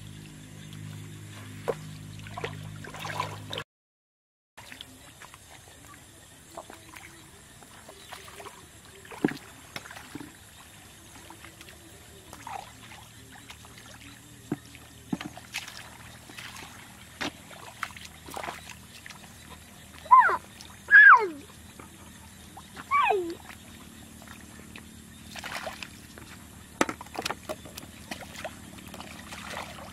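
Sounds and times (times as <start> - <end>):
hands splashing in muddy water: 1.5 - 3.6, 11.1 - 20.9, 25.3 - 26.1, 27.0 - 29.9.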